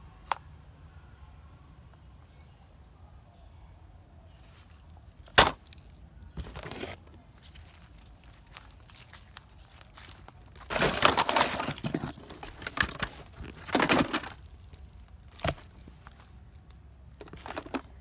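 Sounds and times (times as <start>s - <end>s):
rustling leaf litter: 6.3s - 16.6s
plastic toys clattering: 9.9s - 16.3s, 17.1s - 18.0s.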